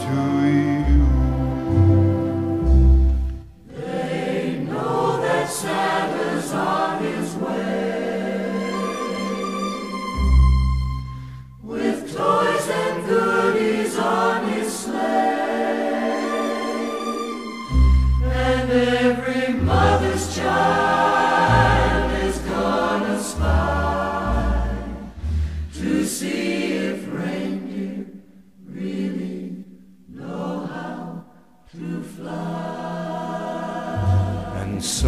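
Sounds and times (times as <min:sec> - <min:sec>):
choir singing slow song: 0:00.0 - 0:35.0.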